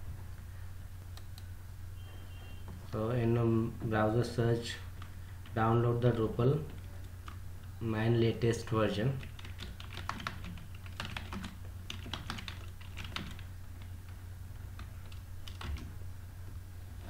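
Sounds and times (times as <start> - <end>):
steady low hum: 0.0 - 17.0
keyboard typing: 9.2 - 14.1, 14.8 - 16.0.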